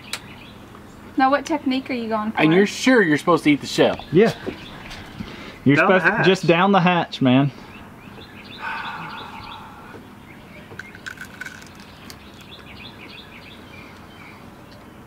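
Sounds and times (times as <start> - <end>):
small birds chirping: 0.0 - 15.0
man chewing crunchy shell: 10.6 - 13.0.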